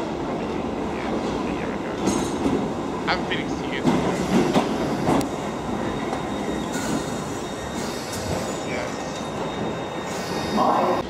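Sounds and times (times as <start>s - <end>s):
train wheels rumbling on rail: 0.0s - 11.0s
faint wheel squeal: 5.8s - 11.0s.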